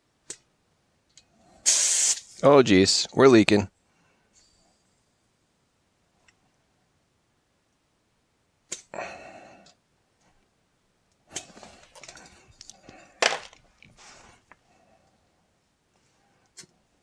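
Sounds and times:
gas hissing: 1.6 - 2.4.

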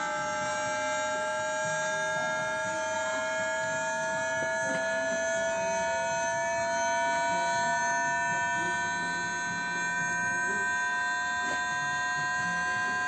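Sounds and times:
electric train inverter whine: 0.0 - 13.0.

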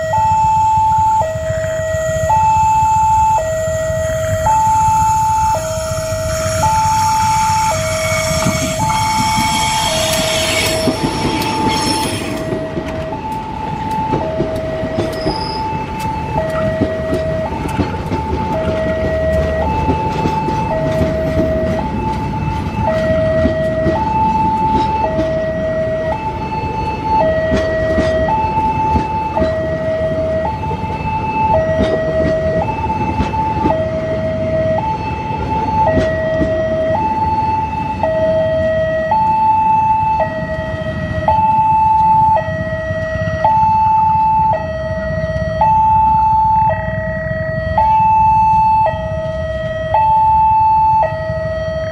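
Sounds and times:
passing train rumble: 0.0 - 51.9
two-tone crossing alarm: 0.0 - 51.9
locomotive horn: 4.4 - 12.7.

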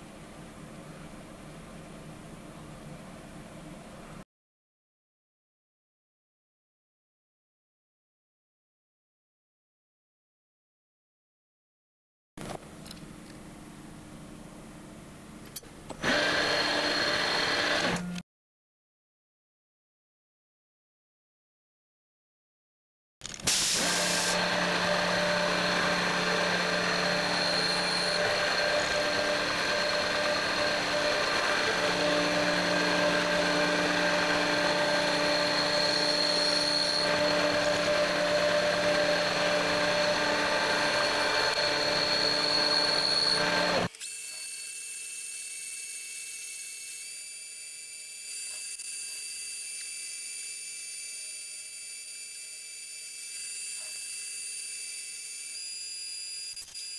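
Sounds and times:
metal lathe machining: 16.0 - 18.1, 23.6 - 44.1.

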